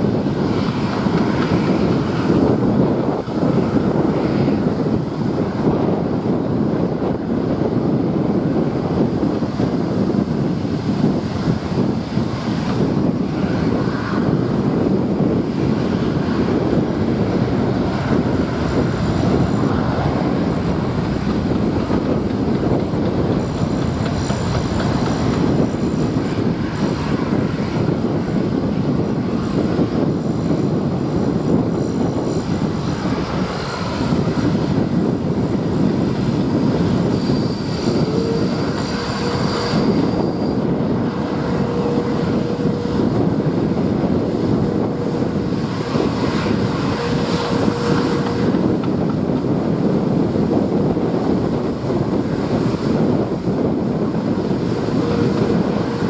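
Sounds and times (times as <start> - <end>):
jet engines roaring: 0.0 - 56.0
steady whine: 0.0 - 56.0.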